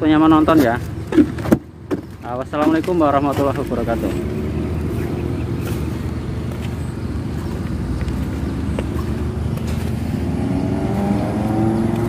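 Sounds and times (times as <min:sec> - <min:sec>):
road traffic rumble: 0:00.0 - 0:12.0
vehicle accelerating: 0:02.9 - 0:12.0.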